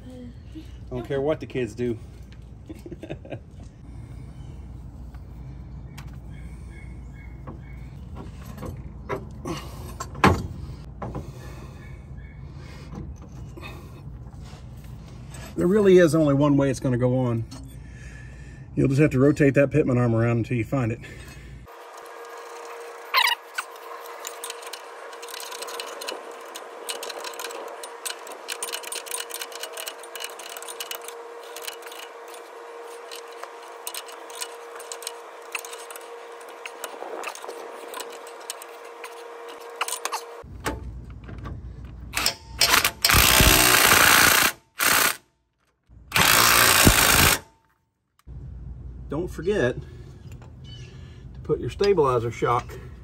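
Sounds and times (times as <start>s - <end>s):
hand tools clicking: 23.2s - 32.4s
impact wrench hammering: 42.2s - 45.2s, 46.1s - 47.5s.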